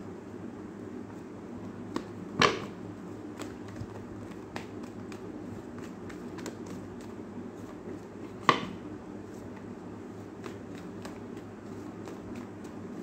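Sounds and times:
steady low hum: 0.0 - 13.0
cards being shuffled: 3.2 - 8.6, 9.2 - 13.0.

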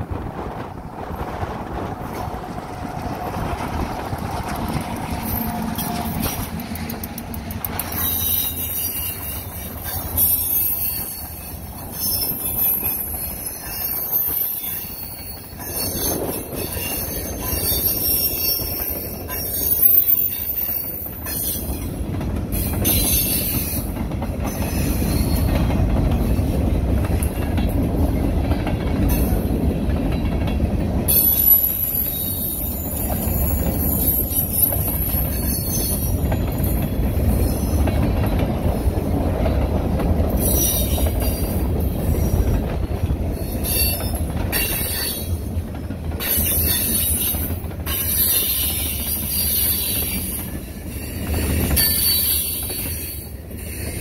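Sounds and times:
locomotive engines humming: 0.0 - 54.0
train wheels rumbling on rail: 0.0 - 54.0
wheels squealing: 3.0 - 25.6, 31.1 - 38.2.

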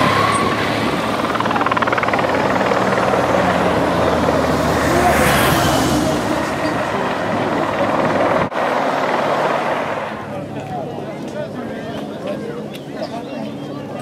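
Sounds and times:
race vehicle engines passing: 0.0 - 10.6
helicopter rotor droning: 0.0 - 14.0.

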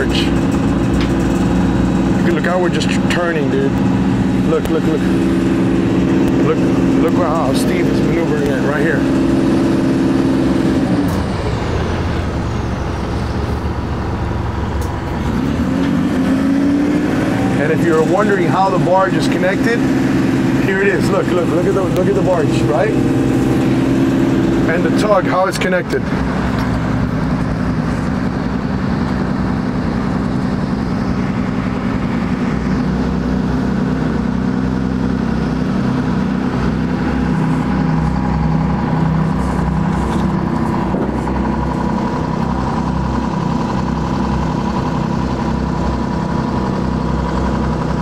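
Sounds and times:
diesel engine droning: 0.0 - 48.0.

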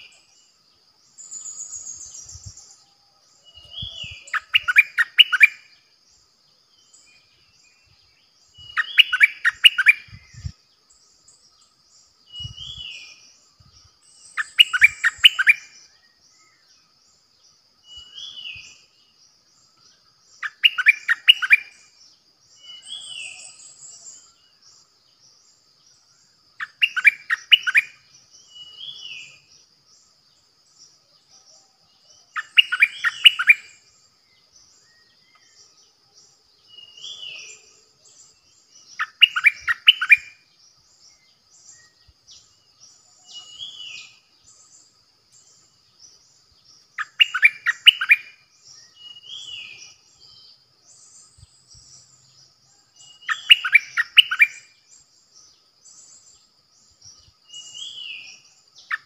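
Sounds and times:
bird singing rapid notes: 0.0 - 17.2, 17.8 - 31.0, 32.1 - 59.0
bird slurred call: 3.5 - 5.7, 8.6 - 10.5, 14.4 - 15.8, 20.4 - 21.8, 32.3 - 33.8, 38.9 - 40.3, 47.0 - 48.3, 53.1 - 54.7.

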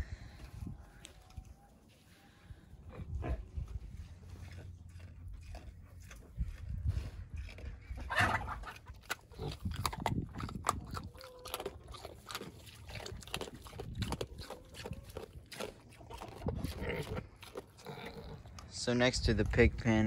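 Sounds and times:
pigs chewing and crunching food: 0.0 - 20.0
pigs grunting: 2.8 - 18.8.

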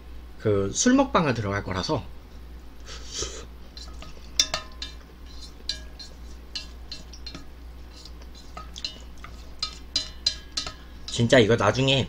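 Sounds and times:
utensils clinking and scraping pot: 3.6 - 12.0.

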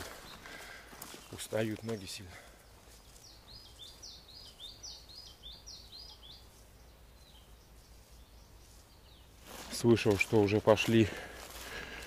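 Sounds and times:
faint forest background: 0.0 - 12.0.

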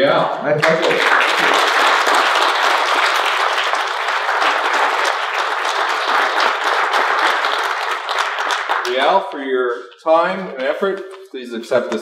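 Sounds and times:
people talking: 0.0 - 1.2, 8.9 - 12.0
audience applauding: 0.6 - 9.4.

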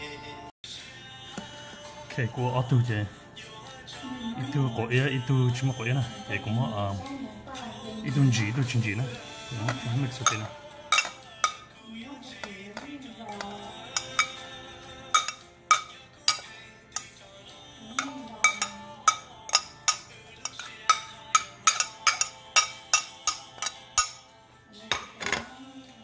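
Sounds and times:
music: 0.0 - 26.0
utensil clinking on ceramic plate: 9.6 - 11.8, 12.4 - 25.5.

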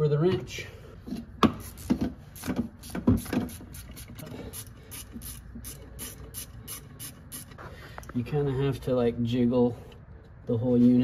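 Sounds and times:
ratchet wrench clicking: 1.5 - 7.6.

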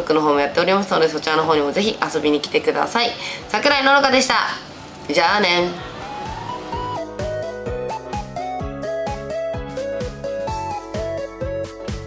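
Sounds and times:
keyboard melody: 5.6 - 12.0
kick-drum beat: 6.3 - 12.0.

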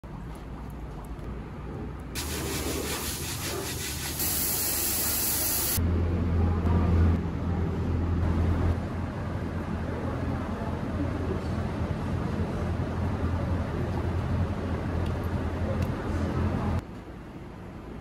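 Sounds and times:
spray gun hissing: 2.2 - 5.8.

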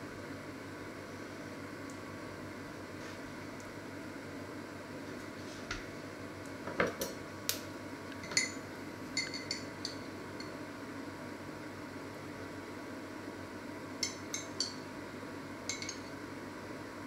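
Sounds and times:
glass jar clinking: 9.2 - 10.0, 15.7 - 16.1.

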